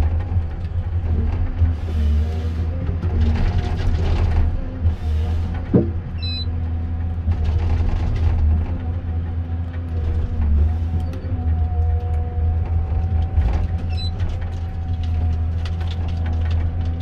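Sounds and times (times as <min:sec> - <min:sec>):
diesel engine and hydraulics droning: 0:00.0 - 0:17.0
high squeak: 0:06.2 - 0:06.6.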